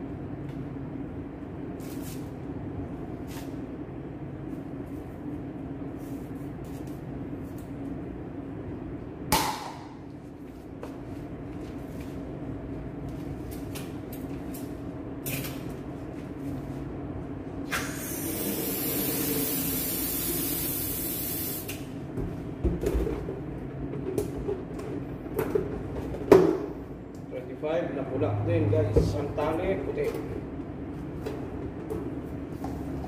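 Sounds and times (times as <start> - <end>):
gas hissing from tank valve: 17.7 - 21.8
low hum: 27.8 - 31.8.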